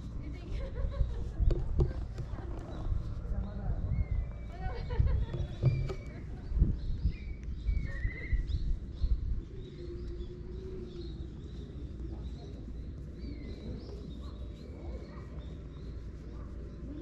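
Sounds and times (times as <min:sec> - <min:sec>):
low outdoor rumble: 0:00.0 - 0:17.0
small birds chirping: 0:00.0 - 0:17.0
dull knocks: 0:01.4 - 0:02.4, 0:05.2 - 0:06.1.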